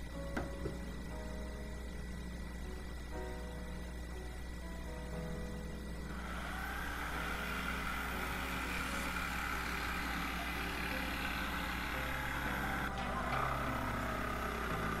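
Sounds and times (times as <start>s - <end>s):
jigsaw cutting plywood: 6.1s - 15.0s.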